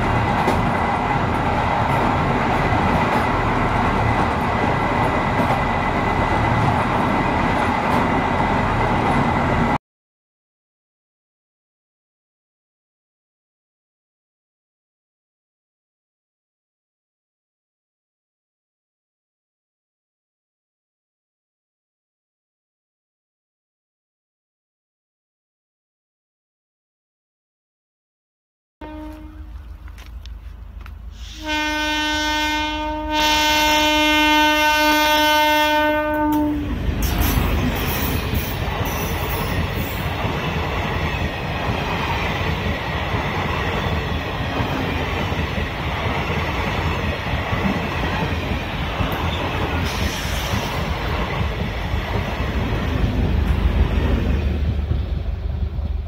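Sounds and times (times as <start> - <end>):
train wheels rumbling on rails: 0.0 - 9.8, 29.1 - 56.0
train horn blast: 28.8 - 29.6, 31.2 - 37.5.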